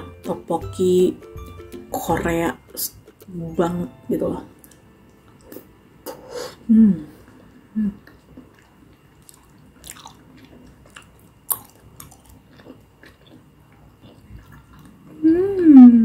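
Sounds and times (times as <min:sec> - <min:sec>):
close-miked wet chewing: 0:08.0 - 0:15.2.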